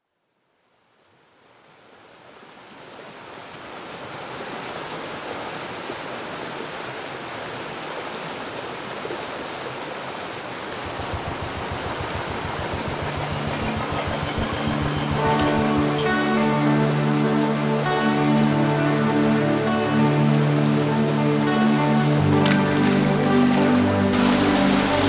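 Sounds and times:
waterfall rushing water: 0:01.8 - 0:25.0
low fast regular throb: 0:10.7 - 0:16.8.

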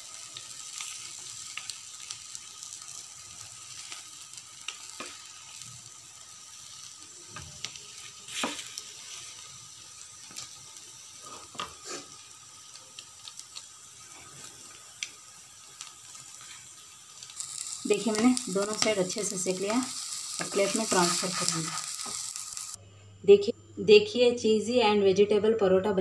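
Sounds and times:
flatbread sizzling on a griddle: 0:00.0 - 0:22.8
spatula scraping griddle: 0:08.0 - 0:09.4, 0:17.4 - 0:22.8.

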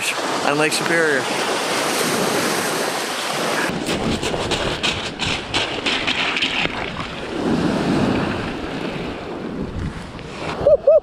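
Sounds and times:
surf washing onto pebbles: 0:00.0 - 0:09.5
wind buffeting microphone: 0:01.7 - 0:11.0.

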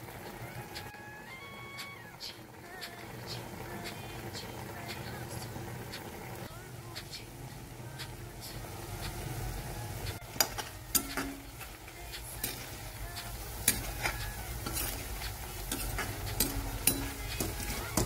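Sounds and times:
mushrooms sizzling in oil: 0:00.0 - 0:18.0
metal spoon scraping a pan: 0:10.1 - 0:18.0.

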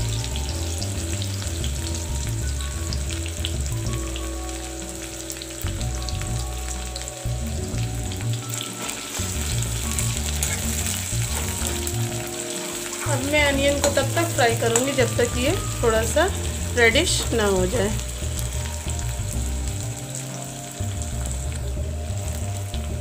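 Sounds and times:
onions sizzling in oil: 0:00.0 - 0:23.0
spoon stirring in metal pan: 0:08.8 - 0:17.4.

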